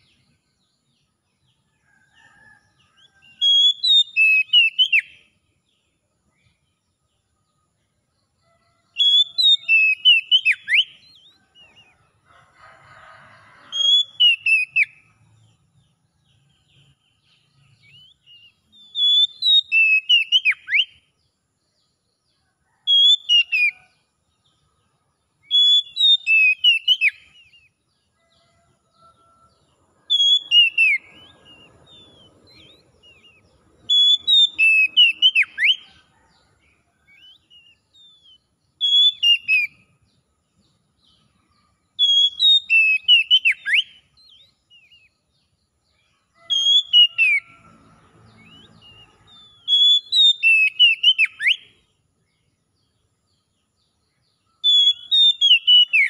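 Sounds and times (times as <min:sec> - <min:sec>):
songbird whistling song: 0:01.8 - 0:06.6, 0:08.6 - 0:12.1, 0:13.6 - 0:15.2, 0:16.5 - 0:21.1, 0:22.7 - 0:23.9, 0:25.4 - 0:28.7, 0:30.0 - 0:36.2, 0:37.0 - 0:40.0, 0:41.1 - 0:45.3, 0:46.3 - 0:51.9, 0:54.1 - 0:56.0.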